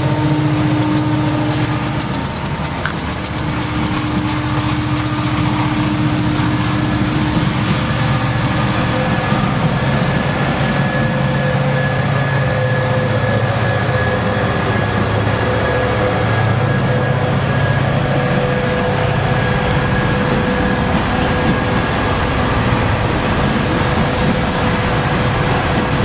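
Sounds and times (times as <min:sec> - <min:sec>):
diesel locomotive engines droning: 0:00.0 - 0:26.0
steel wheels rumbling on rails: 0:00.0 - 0:26.0.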